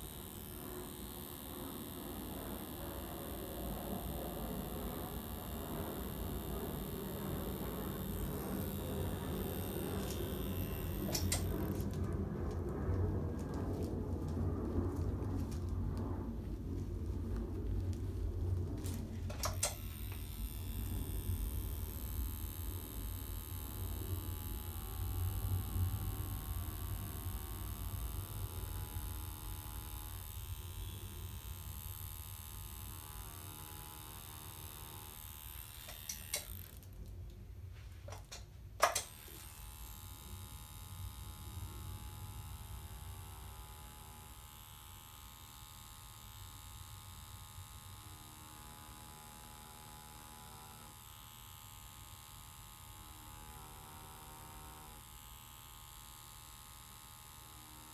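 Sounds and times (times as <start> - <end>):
tattoo machine clicks: 0.0 - 14.3, 18.8 - 37.4, 38.1 - 57.9
tattoo machine buzzing: 0.0 - 37.3, 38.0 - 57.9.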